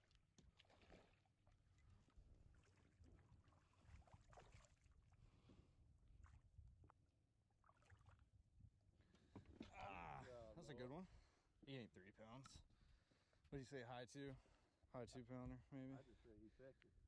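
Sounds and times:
low rumble of water and wind: 0:00.0 - 0:17.0
fish splashing in water: 0:00.4 - 0:05.2, 0:07.6 - 0:08.3.

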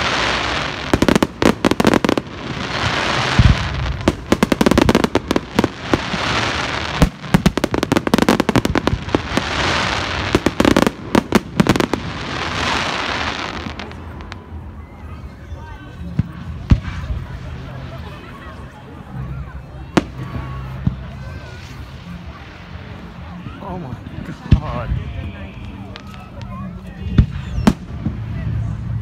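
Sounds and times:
fireworks hiss: 0:00.0 - 0:14.1
fireworks bursting: 0:00.0 - 0:14.4, 0:16.1 - 0:17.7, 0:27.0 - 0:28.9.

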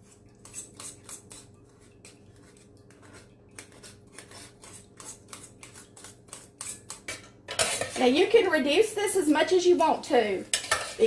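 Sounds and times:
spoon scraping a mesh strainer: 0:00.0 - 0:08.3, 0:10.4 - 0:11.0.

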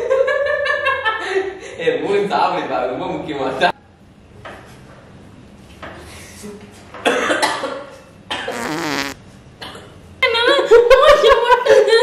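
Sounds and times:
faint eating sounds: 0:08.5 - 0:09.2
person coughing: 0:08.5 - 0:09.2.

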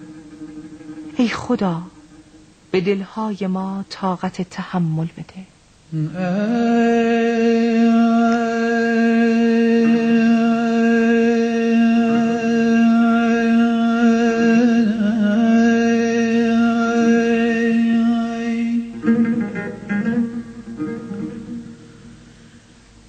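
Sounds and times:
plucked string notes: 0:00.0 - 0:02.7, 0:16.3 - 0:22.7.

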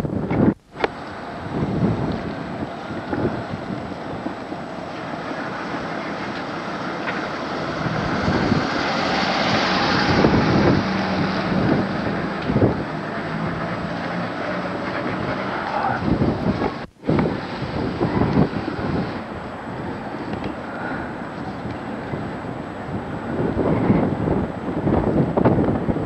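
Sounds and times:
low engine hum: 0:00.0 - 0:26.0
wind noise on microphone: 0:00.0 - 0:26.0
car passing: 0:00.8 - 0:26.0.

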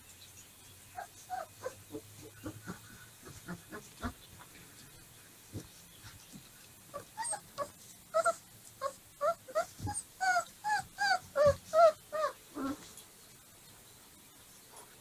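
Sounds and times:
puppies whimpering: 0:01.0 - 0:04.2, 0:06.9 - 0:12.8.

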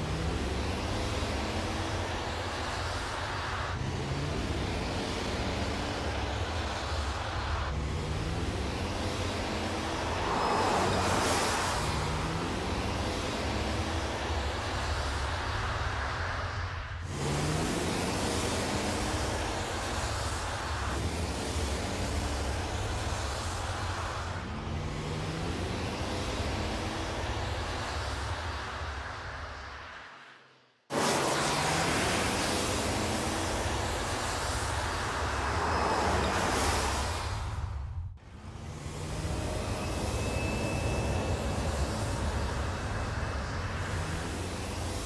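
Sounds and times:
road and wind noise: 0:00.0 - 0:45.0
rushing noise: 0:00.0 - 0:45.0
car driving by: 0:02.6 - 0:29.2.

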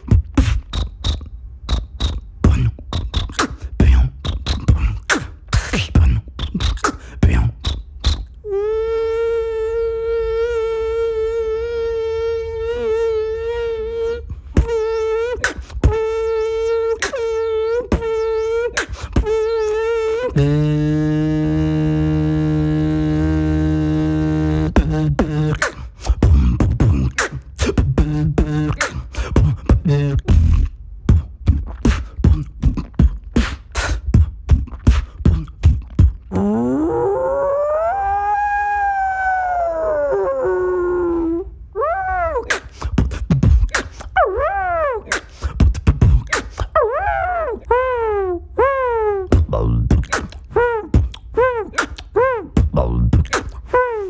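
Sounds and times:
mouth clicks and pops: 0:00.0 - 0:09.0, 0:14.6 - 0:22.8, 0:24.2 - 0:36.8, 0:42.4 - 0:44.2, 0:45.1 - 0:46.8, 0:49.2 - 0:54.0
beatboxer imitating bee buzz: 0:00.0 - 0:54.0
beatboxer imitating fly buzz: 0:00.0 - 0:54.0.

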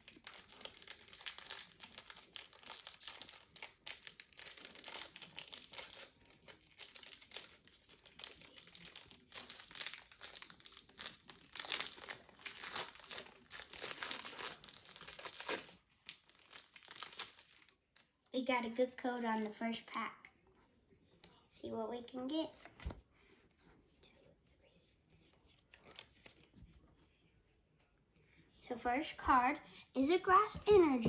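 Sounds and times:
foil wrapper crinkling: 0:00.0 - 0:17.8
foil wrapper tearing: 0:00.0 - 0:17.8.

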